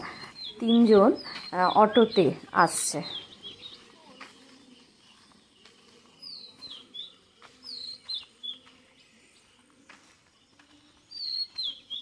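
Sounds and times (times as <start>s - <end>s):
songbird whistling: 11.0s - 12.0s.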